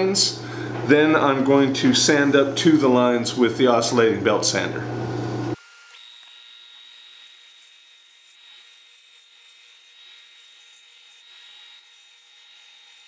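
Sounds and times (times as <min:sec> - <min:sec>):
wood being sanded: 0:06.7 - 0:13.0.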